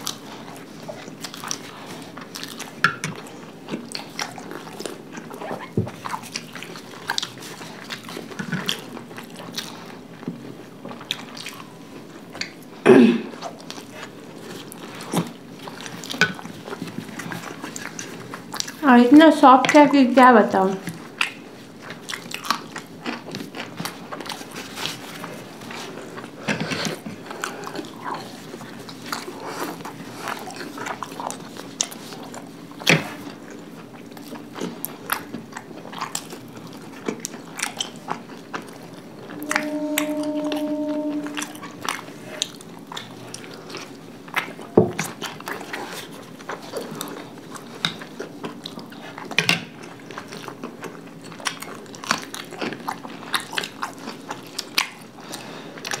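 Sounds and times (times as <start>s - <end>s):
steady hum: 39.1s - 42.1s.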